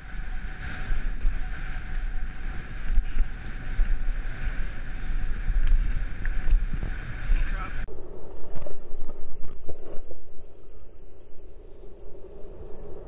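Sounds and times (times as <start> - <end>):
skis sliding on snow: 0.0 - 7.9
wind buffeting microphone: 0.0 - 13.0.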